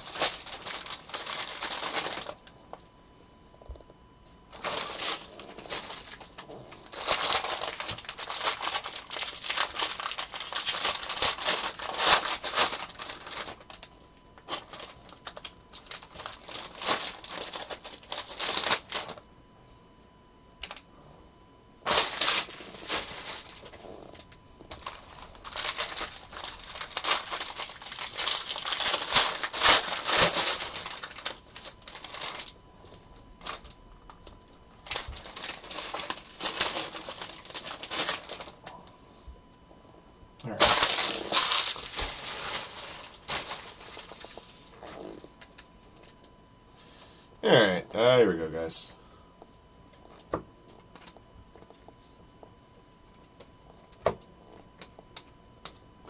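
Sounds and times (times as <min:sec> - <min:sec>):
foil wrappers crinkling and tearing: 0:00.0 - 0:02.6, 0:04.5 - 0:19.2, 0:20.6 - 0:20.8, 0:21.8 - 0:38.9, 0:40.4 - 0:46.3, 0:50.0 - 0:51.9.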